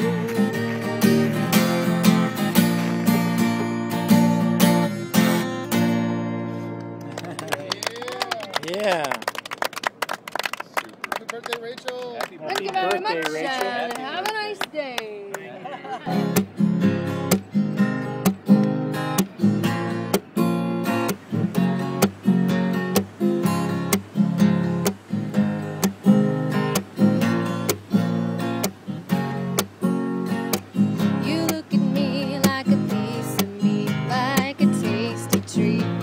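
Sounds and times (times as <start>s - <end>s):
acoustic guitar strumming: 0.0s - 7.1s, 16.0s - 36.0s.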